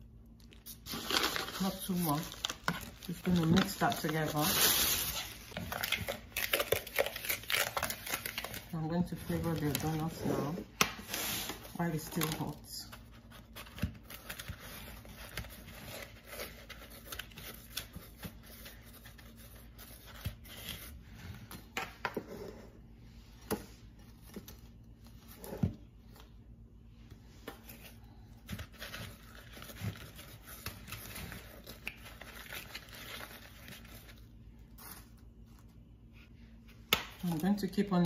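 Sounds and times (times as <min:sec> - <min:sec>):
sugar rustling and scraping: 0:00.5 - 0:22.8.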